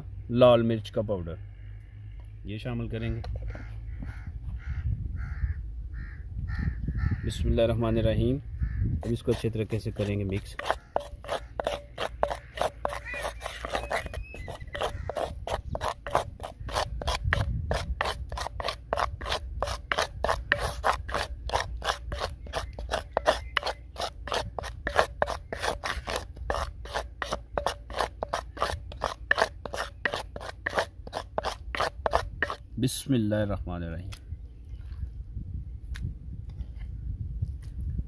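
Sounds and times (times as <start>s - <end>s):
wooden spatula scraping clay bowl: 9.0s - 32.7s.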